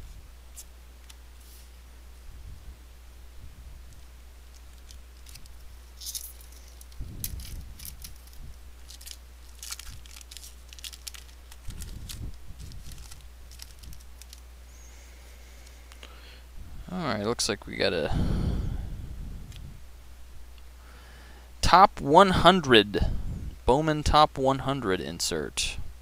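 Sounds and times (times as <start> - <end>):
cards being handled: 4.0 - 14.5
wrapper tearing and crinkling: 4.5 - 14.4.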